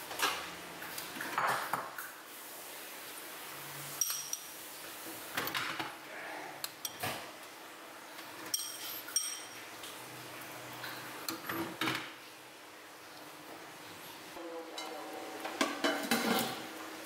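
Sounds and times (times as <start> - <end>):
metal spoon clinking on ceramic bowl: 8.5 - 9.6.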